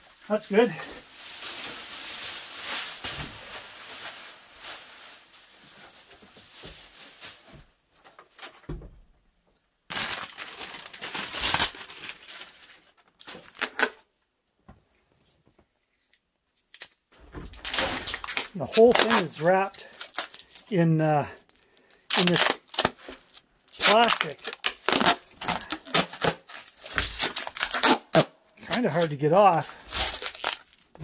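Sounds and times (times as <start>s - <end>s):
plastic wrapping crinkling: 0.0s - 7.6s, 9.9s - 14.1s, 15.8s - 31.0s.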